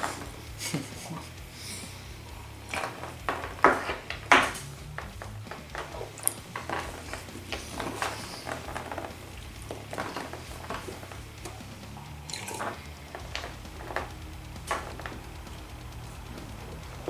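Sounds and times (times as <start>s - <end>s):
drinking from a cup: 12.0s - 12.7s
wet chewing and smacking: 12.2s - 12.6s.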